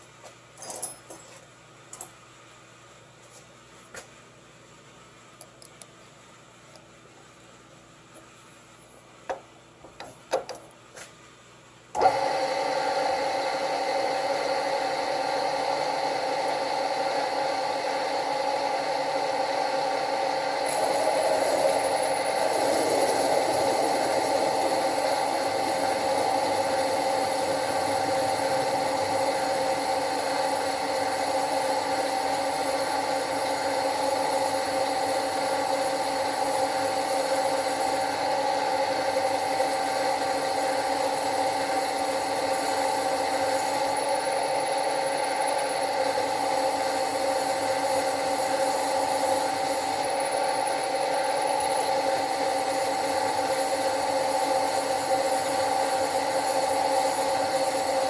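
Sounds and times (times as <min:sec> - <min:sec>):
drill bit cutting steel: 0:15.6 - 0:58.0.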